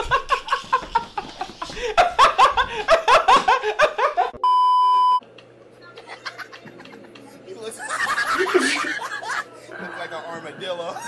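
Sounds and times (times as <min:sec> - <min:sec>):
young man laughing loudly: 0:00.0 - 0:04.4, 0:06.0 - 0:10.0
electronic bleep: 0:04.4 - 0:05.2.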